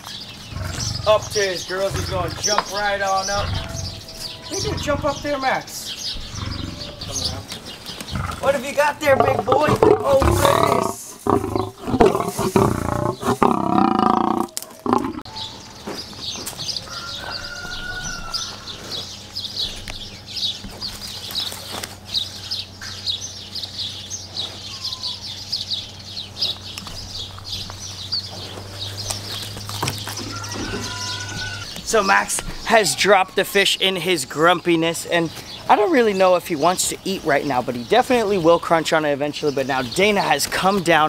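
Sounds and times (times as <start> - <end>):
birds chirping: 0.0 - 41.0
lion growling: 0.3 - 15.3.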